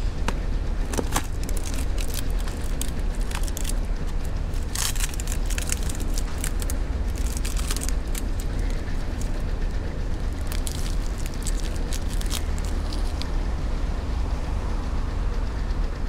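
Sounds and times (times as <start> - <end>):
low steady rumble: 0.0 - 16.0
cardboard box crackling and rustling: 0.8 - 9.4, 10.3 - 13.3.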